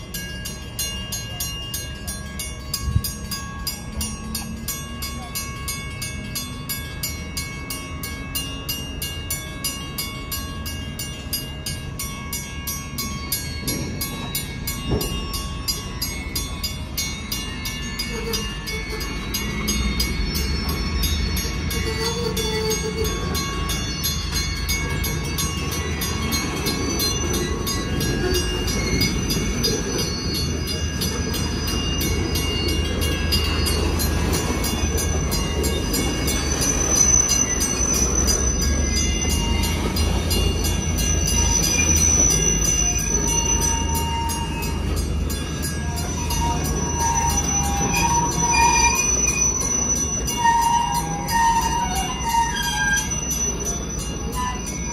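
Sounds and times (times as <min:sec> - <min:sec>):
crossing bell ringing: 0:00.0 - 0:54.9
train wheels rumbling on rails: 0:00.0 - 0:54.9
high wheel squeals: 0:12.4 - 0:54.9.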